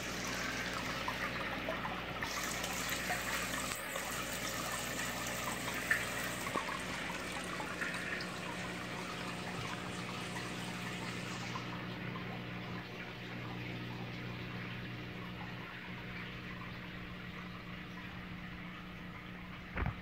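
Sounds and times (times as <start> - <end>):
water trickling and splashing: 0.0 - 20.0.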